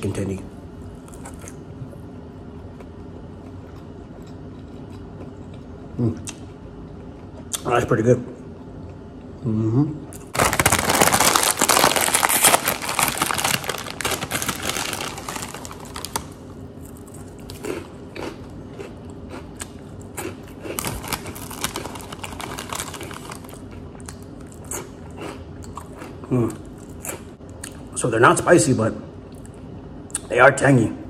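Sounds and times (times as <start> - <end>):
hand rummaging in chip bag: 10.3 - 16.4, 20.8 - 23.6
plastic snack bag crinkling: 10.3 - 17.7, 20.6 - 23.8.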